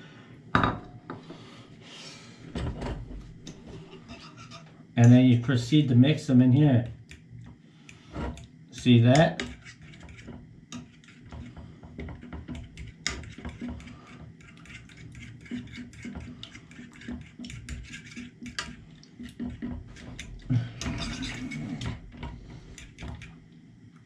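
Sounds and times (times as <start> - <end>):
fork beating eggs in a pan: 3.9 - 4.7, 7.0 - 23.4.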